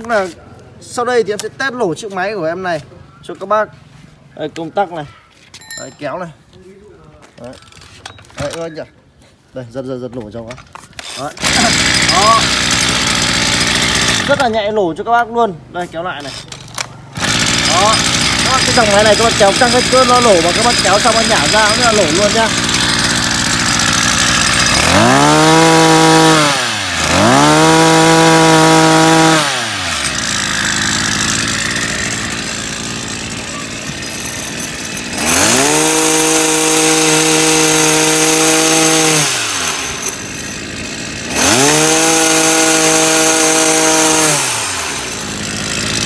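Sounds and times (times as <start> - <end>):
brush cutter engine revving: 11.0 - 14.6, 16.2 - 46.0.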